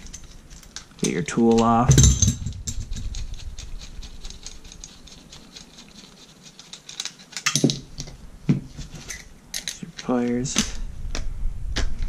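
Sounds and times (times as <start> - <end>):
light metallic clicks and scrapes: 0.0 - 8.2, 8.8 - 10.8
metal knocking on metal: 1.6 - 2.9.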